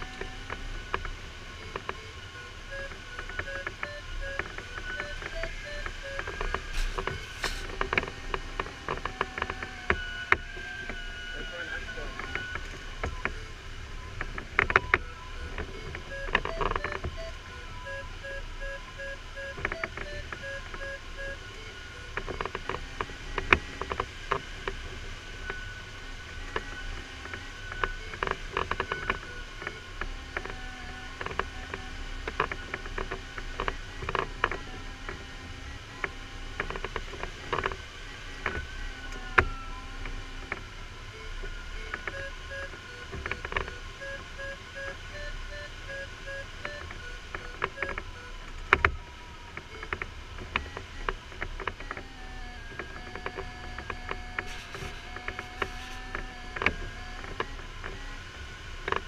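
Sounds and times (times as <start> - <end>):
air rushing in cockpit: 1.2 - 8.2
variometer beeps and tone: 1.6 - 7.6, 14.6 - 22.3, 41.1 - 48.4, 52.0 - 58.1.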